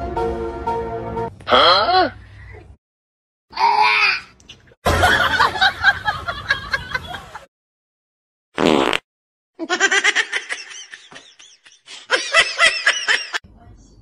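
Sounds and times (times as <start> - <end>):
person laughing: 9.6 - 13.4.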